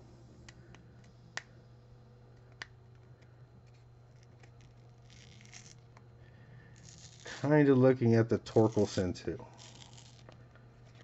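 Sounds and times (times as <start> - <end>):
card being peeled apart: 3.7 - 6.0, 6.8 - 7.6, 8.5 - 11.0.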